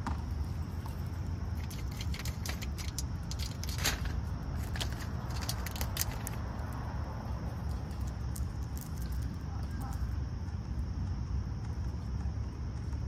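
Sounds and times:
steady low rumble: 0.0s - 13.0s
peanuts rattling on metal tray: 1.6s - 6.3s.

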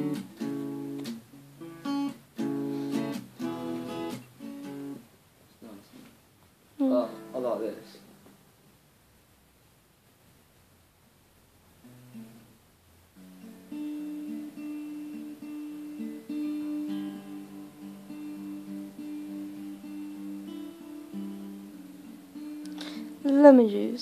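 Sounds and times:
acoustic guitar picked chords: 0.0s - 5.1s, 6.8s - 8.5s, 11.8s - 24.0s.

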